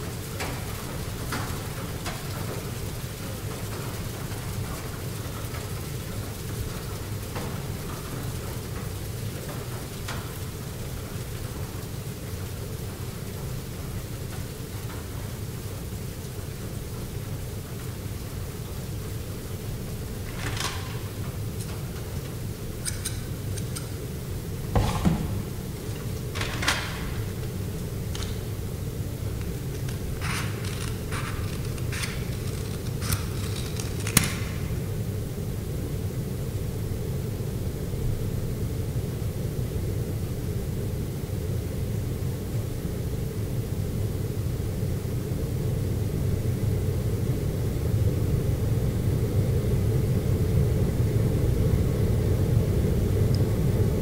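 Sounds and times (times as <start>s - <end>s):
steady hiss: 0.0s - 54.0s
steady low hum: 0.0s - 54.0s
dull thump: 24.7s - 25.6s.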